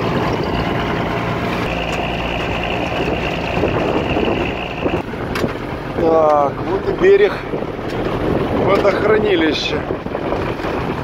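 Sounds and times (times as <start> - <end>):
truck diesel engine running: 0.0 - 8.7
steady high whine: 1.6 - 5.0.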